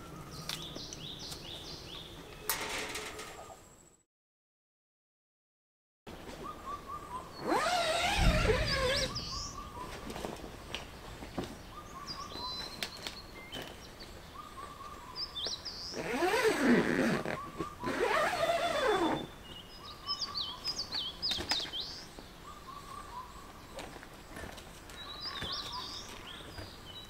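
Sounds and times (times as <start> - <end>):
birds singing: 0.0 - 2.7, 6.1 - 27.0
warbling bird calls: 6.4 - 10.6, 14.3 - 21.6.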